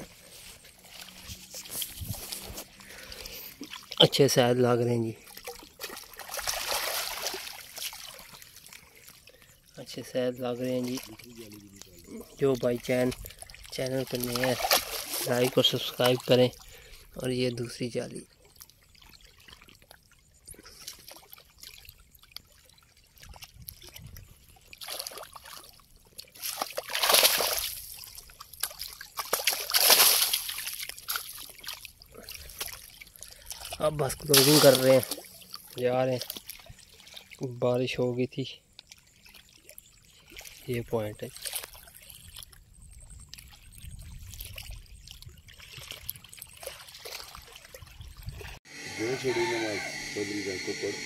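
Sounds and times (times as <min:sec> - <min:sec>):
small waves lapping: 0:00.0 - 0:37.6, 0:38.6 - 0:51.0
water sloshing and splashing: 0:00.0 - 0:48.8
wind rumble on microphone: 0:01.2 - 0:02.6, 0:42.6 - 0:46.3, 0:47.8 - 0:48.6.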